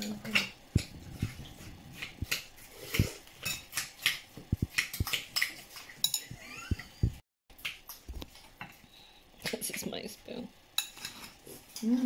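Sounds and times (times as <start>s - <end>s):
metal spoon clinking on ceramic bowl: 5.4s - 6.4s.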